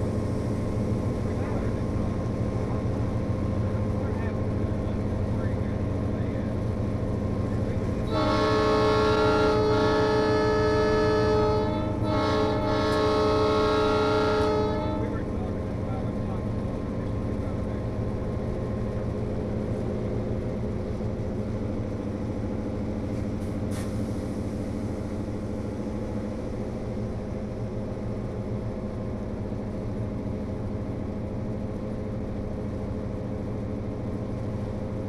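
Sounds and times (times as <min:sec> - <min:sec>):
model train droning: 0:07.5 - 0:17.7.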